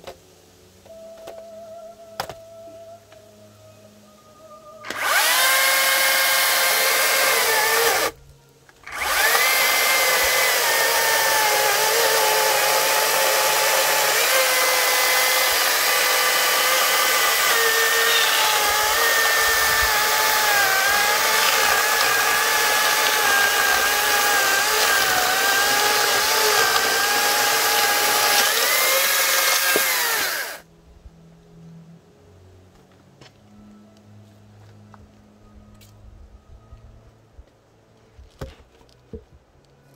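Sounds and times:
electric chainsaw cutting log: 0:04.9 - 0:08.2, 0:08.8 - 0:30.7.

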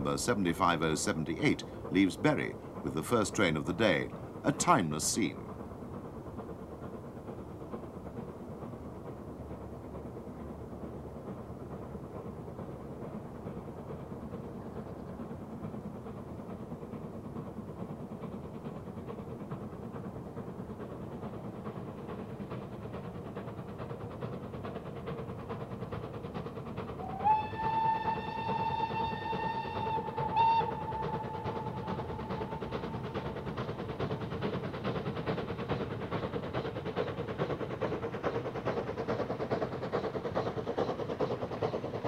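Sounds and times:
steam locomotive exhaust beating: 0:00.0 - 0:42.0
steam whistle: 0:27.0 - 0:32.6.

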